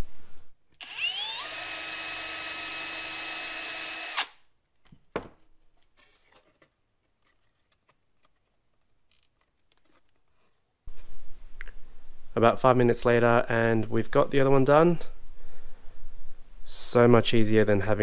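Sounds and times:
cordless drill whining: 0.8s - 4.4s
faint handling noise: 4.7s - 11.9s.

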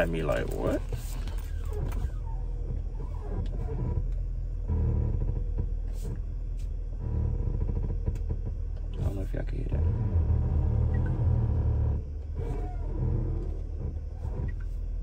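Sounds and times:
faint hum: 0.0s - 15.0s
road and engine rumble: 0.0s - 15.0s.

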